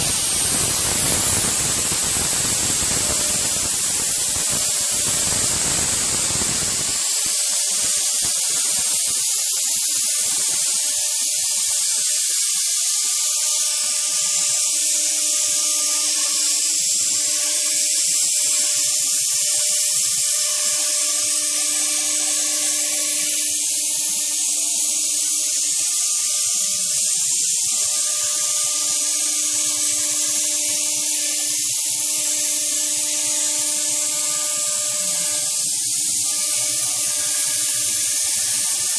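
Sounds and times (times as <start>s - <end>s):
router spindle cutting foam: 0.0s - 38.9s
gantry motor hum: 27.7s - 38.9s.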